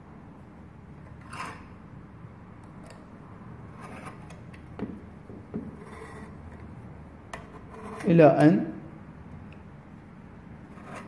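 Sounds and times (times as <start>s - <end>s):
variable resistor scraping: 1.1s - 1.8s, 3.6s - 4.6s, 5.7s - 6.7s, 7.3s - 8.4s, 10.6s - 11.0s
short knocks: 4.8s - 5.8s.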